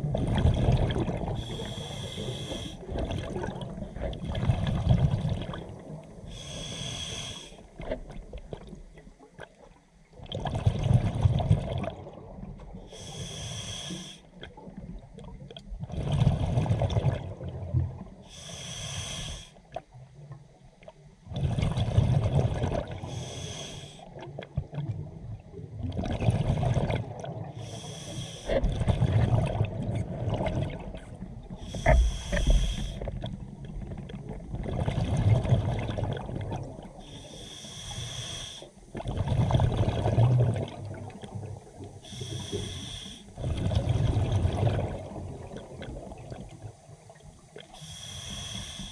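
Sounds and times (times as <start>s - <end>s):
exhaled bubbles rumbling: 0.0s - 6.5s, 7.6s - 13.0s, 14.4s - 18.2s, 19.7s - 23.2s, 24.0s - 27.7s, 28.5s - 37.1s, 38.8s - 42.0s, 43.4s - 47.7s
regulator inhale hiss: 1.4s - 2.8s, 6.3s - 7.7s, 12.9s - 14.3s, 18.3s - 19.6s, 23.0s - 24.1s, 27.6s - 28.6s, 31.6s - 33.1s, 37.0s - 38.8s, 42.0s - 43.4s, 47.7s - 48.9s.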